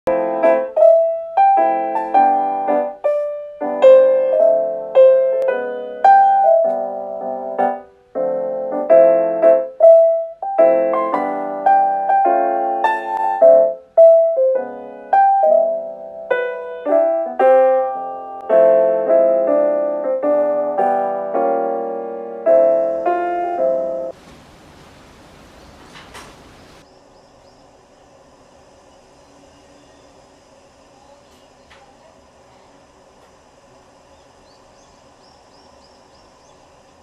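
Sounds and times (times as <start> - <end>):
gentle piano music: 0.1 - 26.9.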